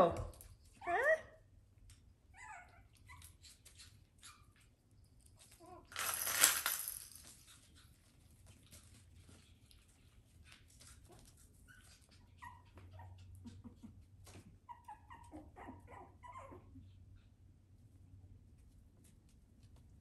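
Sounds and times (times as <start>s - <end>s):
puppies yipping and whimpering: 11.7s - 17.0s.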